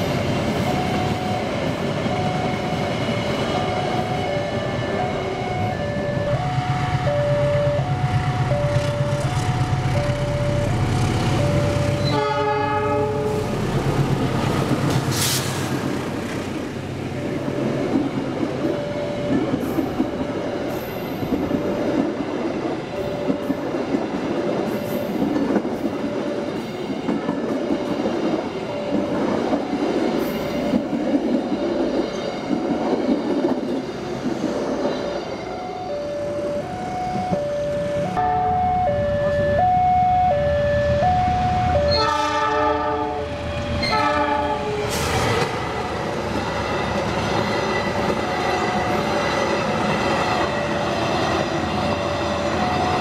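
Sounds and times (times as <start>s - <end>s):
level-crossing alarm two-note tone: 0.5s - 13.5s, 18.6s - 20.8s, 35.4s - 44.8s
train horn blast: 12.0s - 13.6s, 41.9s - 44.9s
train wheels clattering over rails: 13.6s - 16.8s, 17.5s - 35.1s, 44.8s - 53.0s.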